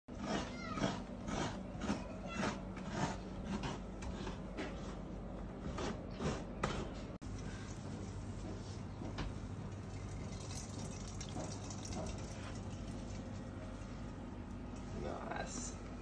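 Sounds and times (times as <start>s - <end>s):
coconut rasping on grater: 0.1s - 5.0s.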